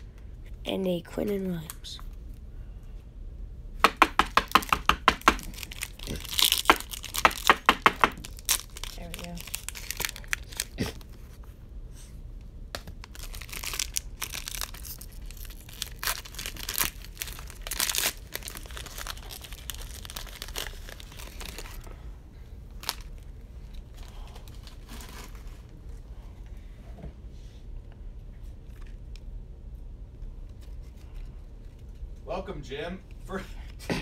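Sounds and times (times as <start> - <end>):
card wrappers tearing and crinkling: 4.9 - 11.2, 12.8 - 21.9, 22.8 - 25.7.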